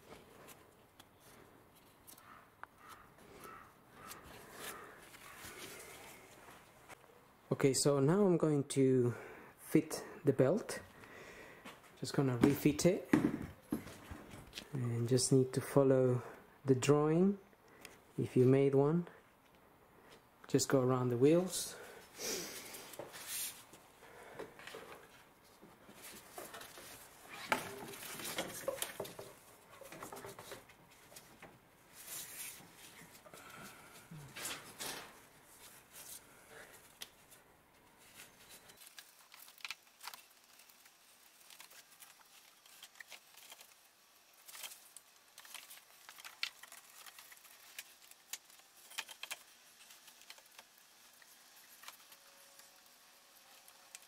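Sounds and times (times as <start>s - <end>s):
belt clicks and rubs: 38.8s - 52.2s.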